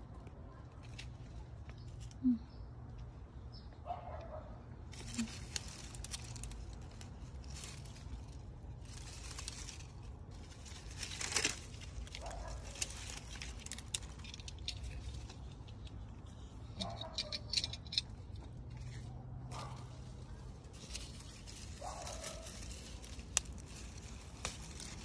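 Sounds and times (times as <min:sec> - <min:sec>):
leaves and netting rustling: 0:04.7 - 0:25.0.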